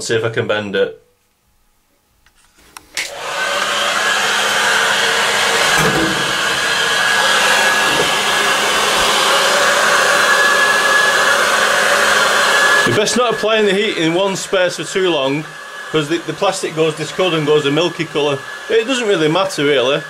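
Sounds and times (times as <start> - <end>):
heat gun fan whine: 2.8 - 20.0
heat gun switch click: 5.7 - 6.8.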